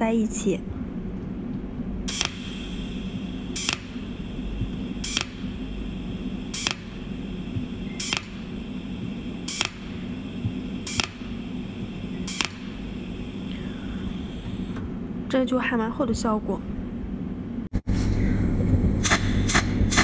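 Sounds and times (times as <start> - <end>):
steady low hum: 0.0 - 20.0
welding machine snaps: 2.1 - 5.6, 6.5 - 12.9.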